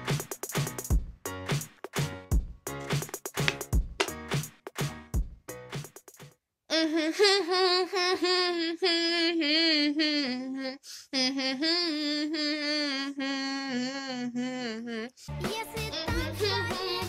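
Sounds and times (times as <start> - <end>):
girl humming melody: 6.7 - 15.3
breath: 10.8 - 11.1.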